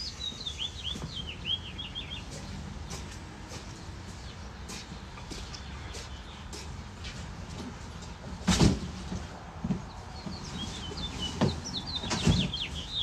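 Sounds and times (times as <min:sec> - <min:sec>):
bird chirping: 0:00.0 - 0:02.7, 0:09.9 - 0:13.0.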